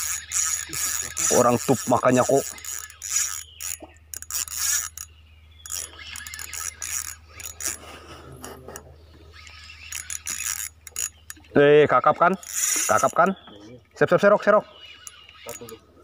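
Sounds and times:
fishing reel whirring and clicking: 0.0 - 7.9, 9.3 - 11.5, 12.2 - 13.3, 14.6 - 15.9.

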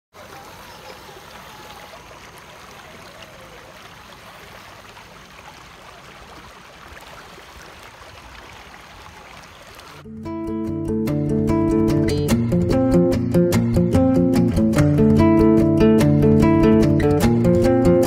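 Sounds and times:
river water flowing over rocks: 0.2 - 10.1.

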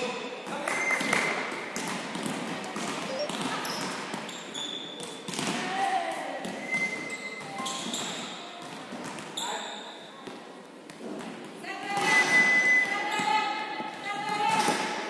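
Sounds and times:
volleyball hits: 0.4 - 9.4
shoes squeaking on hardwood: 6.6 - 8.3.

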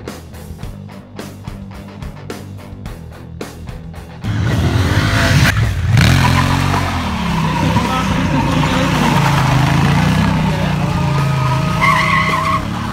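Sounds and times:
motorcycle engine revving: 4.1 - 12.9
tyre squeal: 6.0 - 12.9.

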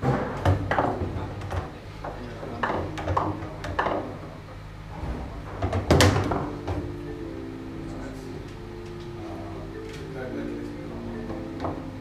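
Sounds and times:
foosball ball clacking: 0.0 - 4.4, 5.4 - 7.2, 11.2 - 12.0
foosball rods rattling: 0.0 - 4.4, 5.4 - 7.0.

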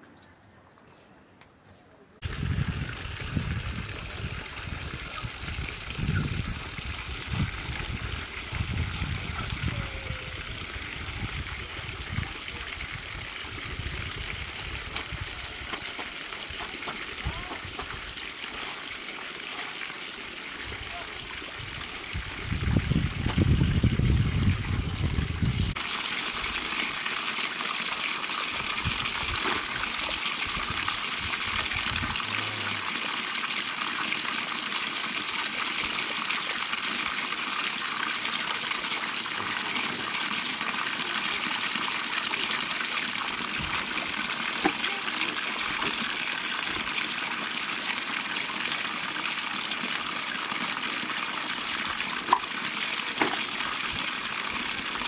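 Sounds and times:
water gushing from tap into bucket: 2.2 - 55.0
water spilling onto concrete: 2.2 - 55.0
splashing of hand washing clothes: 52.1 - 53.9.

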